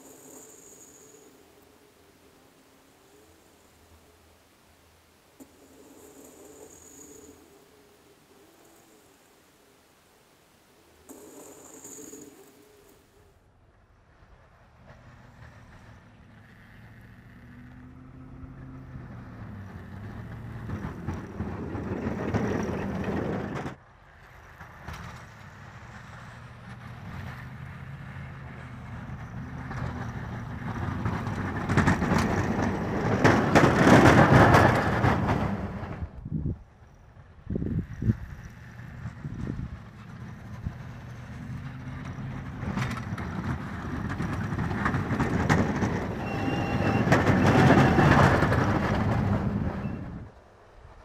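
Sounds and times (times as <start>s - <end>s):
plow blade scraping: 14.8s - 36.2s, 37.6s - 50.3s
truck engine under load: 14.8s - 36.3s, 37.2s - 50.6s.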